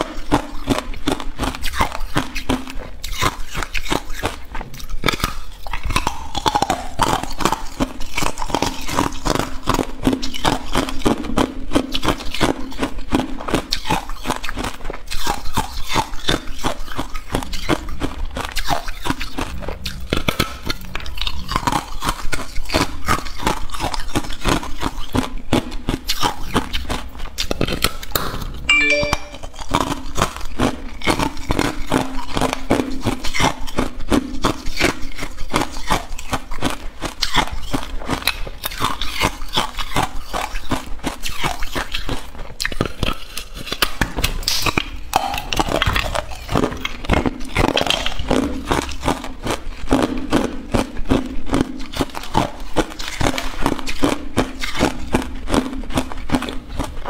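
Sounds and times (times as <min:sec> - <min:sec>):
ice cubes crunching: 0:29.7 - 0:57.0.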